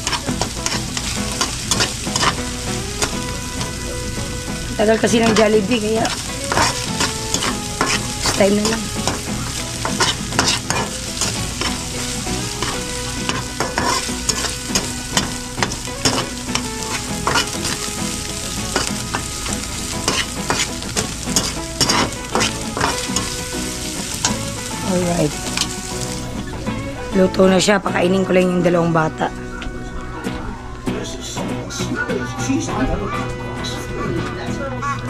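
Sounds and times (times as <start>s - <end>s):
spatula scraping and tapping pan: 0.0s - 3.7s, 5.2s - 17.8s, 18.7s - 24.7s
food sizzling in a pan: 0.0s - 29.2s.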